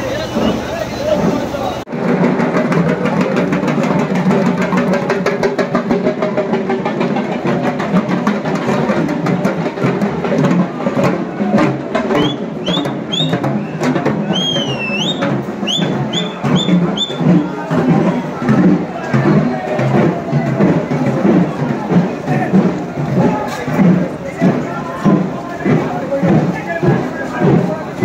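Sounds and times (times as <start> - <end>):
procession music with fast drumming: 0.0 - 28.0
shrill whistle chirps: 12.2 - 17.2.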